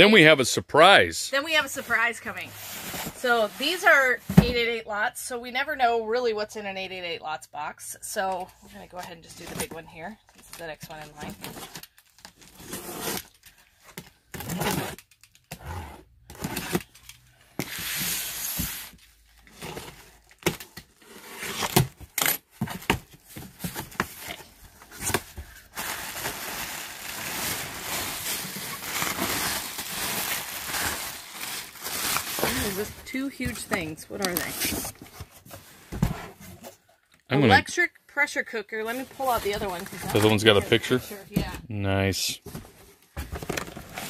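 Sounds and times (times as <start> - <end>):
plastic wrapping rustling: 23.0 - 35.8, 39.0 - 41.4.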